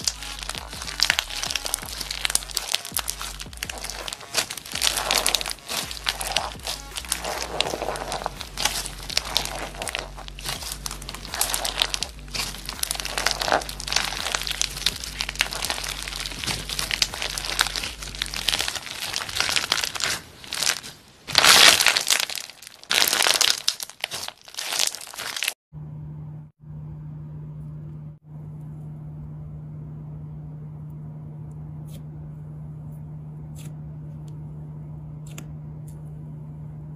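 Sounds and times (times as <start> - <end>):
beaded slime crackling and popping: 0.0 - 25.6
faint low hum: 25.8 - 36.9.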